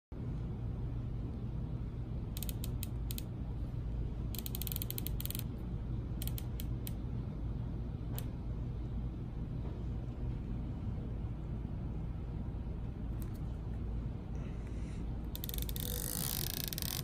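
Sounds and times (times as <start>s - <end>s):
steady low hum: 0.1s - 17.0s.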